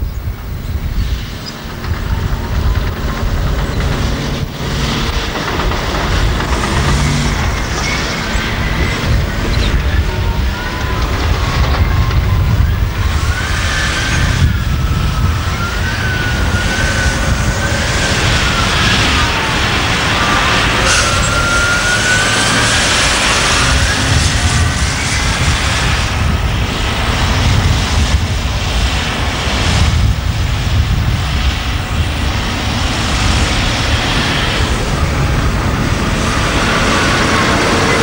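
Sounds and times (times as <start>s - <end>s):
diesel engines rumbling: 0.0s - 38.0s
high wavering whine: 0.0s - 38.0s.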